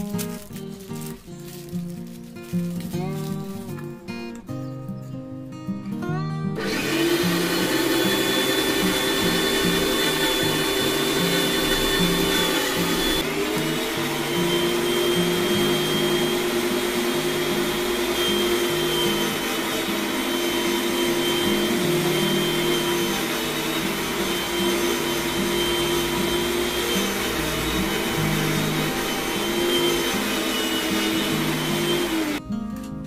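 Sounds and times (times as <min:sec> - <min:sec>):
meat grinder motor whining: 0:06.6 - 0:32.4.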